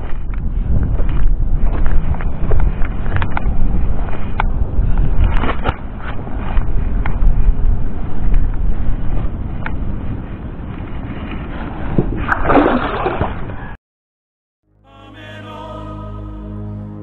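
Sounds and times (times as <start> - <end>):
wind rumbling on microphone: 0.0 - 13.8
lapping water: 12.0 - 13.6.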